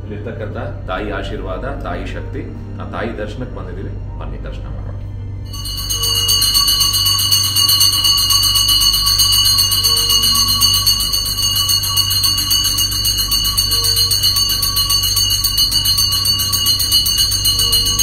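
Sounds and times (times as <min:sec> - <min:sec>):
steady low hum: 0:00.0 - 0:18.0
bell ringing rapidly: 0:05.5 - 0:18.0.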